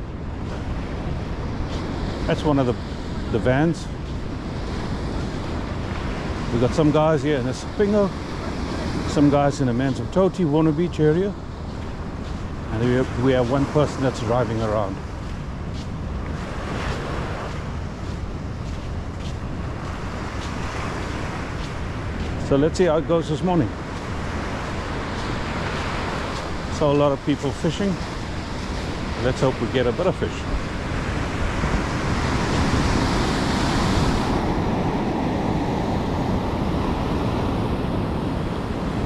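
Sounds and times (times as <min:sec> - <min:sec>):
surf breaking on beach: 0:19.7 - 0:39.0.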